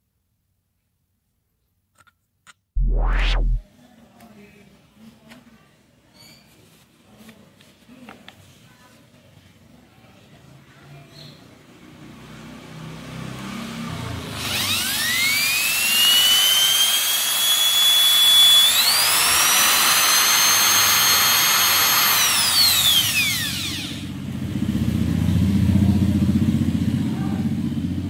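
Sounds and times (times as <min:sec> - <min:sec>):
drill motor whine: 0:02.8 - 0:03.6, 0:14.4 - 0:24.1
low rumbling: 0:02.8 - 0:03.6.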